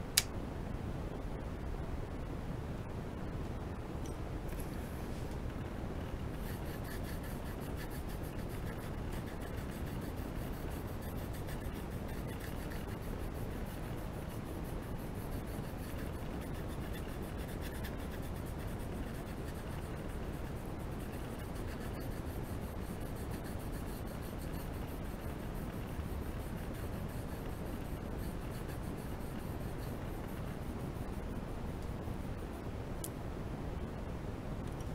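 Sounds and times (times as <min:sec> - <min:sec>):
pencil scratching on paper: 0:06.3 - 0:31.2.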